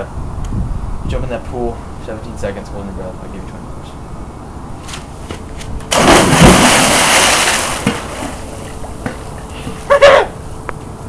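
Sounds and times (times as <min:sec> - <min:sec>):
loud splash into pool: 0:05.9 - 0:08.6
water rushing: 0:05.9 - 0:08.8.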